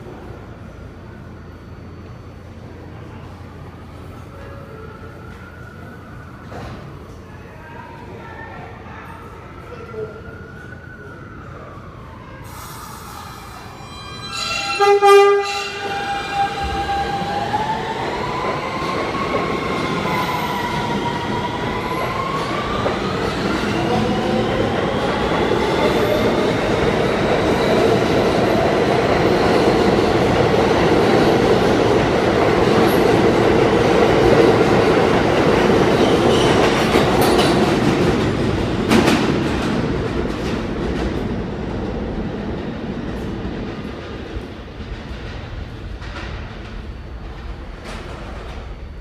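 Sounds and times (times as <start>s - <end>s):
train propulsion whine: 12.5s - 40.5s
train wheels rumbling on rail: 15.3s - 49.0s.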